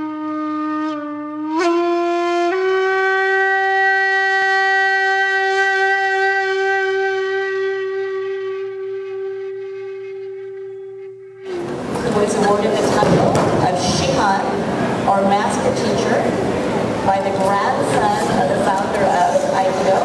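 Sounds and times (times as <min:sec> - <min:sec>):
wind instrument notes: 0:00.0 - 0:13.2.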